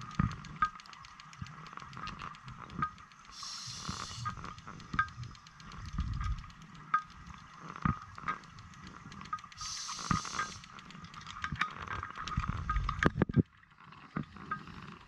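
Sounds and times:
faint clicks: 0.0s - 15.0s
regulator inhale hiss: 3.3s - 4.4s, 9.6s - 10.7s.

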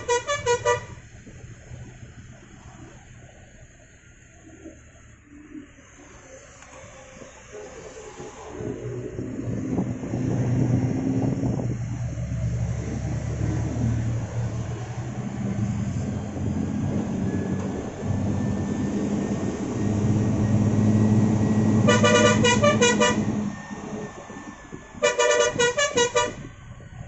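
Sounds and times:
bus horn pulsing: 0.0s - 1.1s, 21.6s - 23.6s, 25.0s - 26.5s
bus engine running: 0.0s - 27.0s.

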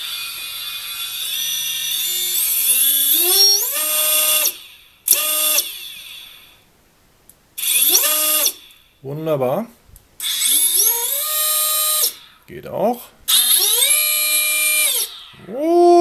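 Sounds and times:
electric motor whine: 0.0s - 6.5s, 13.3s - 15.2s.

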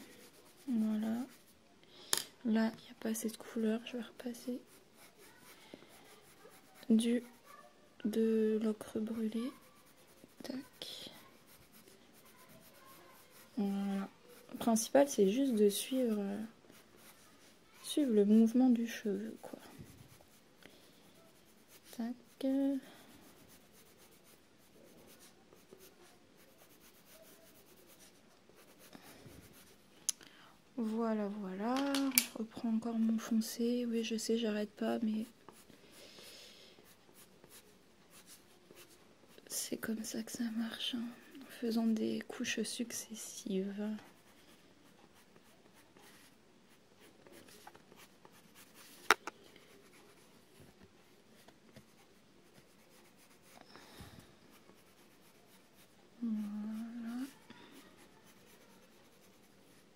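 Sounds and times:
pencil scratching on paper: 0.0s - 1.5s, 4.3s - 29.8s, 33.8s - 39.6s, 44.0s - 50.4s, 51.4s - 53.6s, 54.2s - 59.9s.

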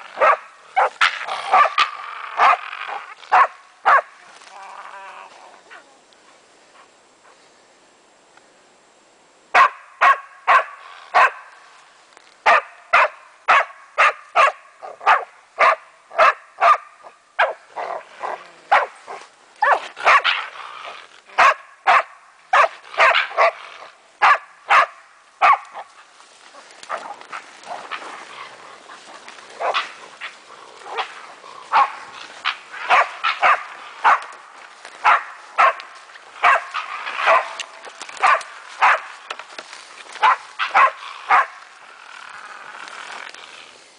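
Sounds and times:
dog barking: 0.2s - 2.6s, 3.3s - 4.1s, 9.6s - 11.4s, 12.5s - 17.6s, 18.7s - 18.9s, 19.6s - 20.4s, 21.4s - 23.6s, 24.2s - 25.8s, 31.7s - 32.0s, 32.9s - 34.3s, 35.0s - 35.8s, 36.4s - 37.6s, 38.2s - 39.1s, 40.2s - 41.5s.

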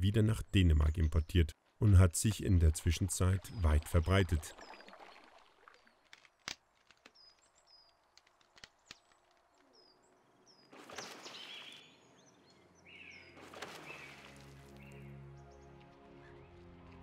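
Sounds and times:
water splashing: 2.6s - 6.4s, 10.7s - 11.8s, 13.3s - 15.0s
bird chirping: 9.5s - 16.6s.

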